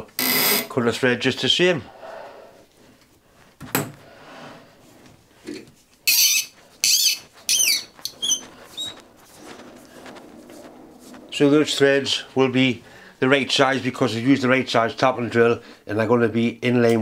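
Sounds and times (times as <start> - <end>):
tap squeaking in brass: 6.1 - 8.4.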